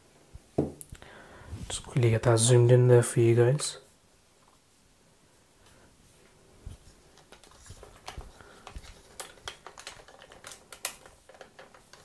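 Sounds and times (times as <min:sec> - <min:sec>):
light irregular clicks and taps: 0:07.2 - 0:12.0.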